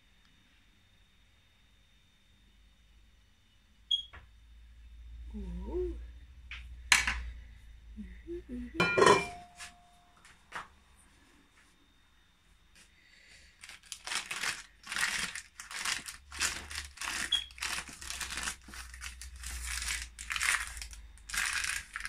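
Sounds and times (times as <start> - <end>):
paper crinkling and rustling: 13.6 - 22.0.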